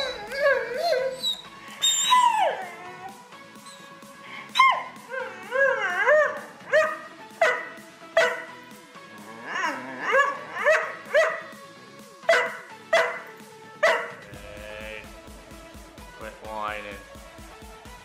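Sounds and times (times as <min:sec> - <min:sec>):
dog barking and grumbling: 0:00.0 - 0:03.2, 0:04.4 - 0:11.6, 0:12.2 - 0:14.3
dog whining howl: 0:00.0 - 0:03.9, 0:04.5 - 0:07.6, 0:09.3 - 0:11.4.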